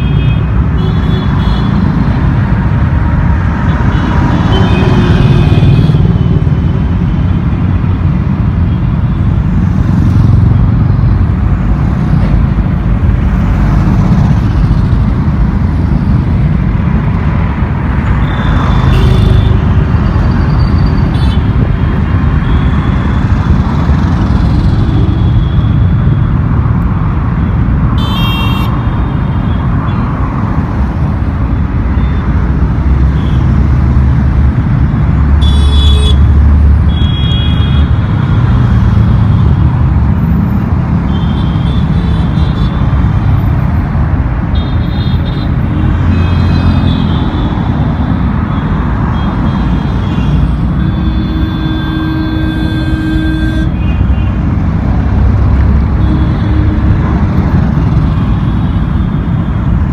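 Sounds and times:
heavy road traffic rumble: 0.0 - 59.9
vehicle horns honking: 18.2 - 19.8, 28.0 - 29.6, 35.4 - 38.4, 44.5 - 47.7, 49.1 - 54.4, 55.9 - 57.2.

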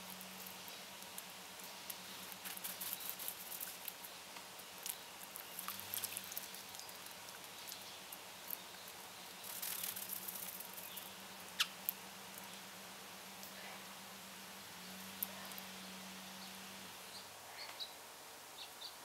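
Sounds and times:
faint low steady hum: 0.0 - 19.0
bird wings fluttering: 2.2 - 4.0, 9.4 - 10.9
birds tapping on bird bath rim: 4.8 - 12.5.

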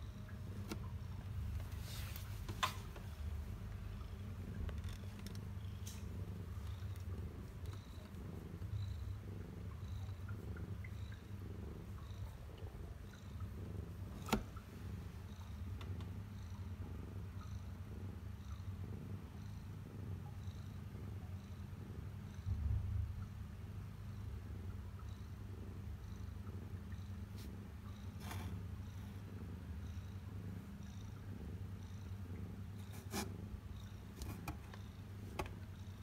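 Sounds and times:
cat purring: 0.0 - 36.0.

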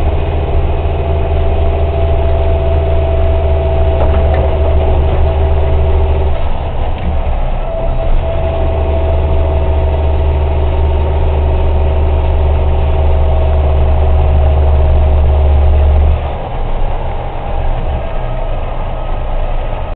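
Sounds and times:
truck engine and road noise: 0.0 - 19.9.

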